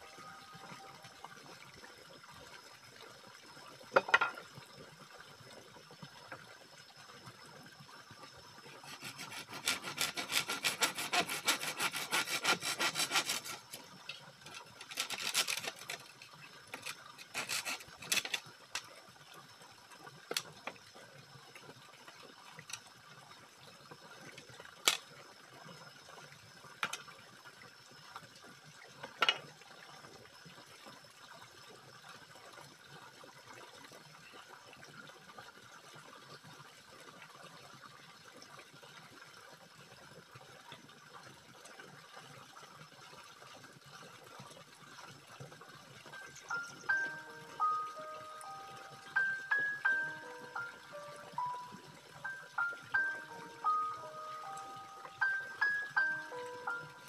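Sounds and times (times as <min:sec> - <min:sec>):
blade sawing bamboo: 0:08.7 - 0:13.8, 0:14.5 - 0:16.1, 0:16.8 - 0:18.4.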